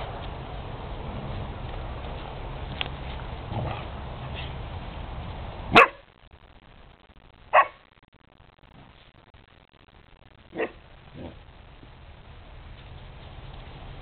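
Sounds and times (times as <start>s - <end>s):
puppy barking: 5.7s - 6.1s, 7.5s - 7.8s, 10.6s - 11.3s.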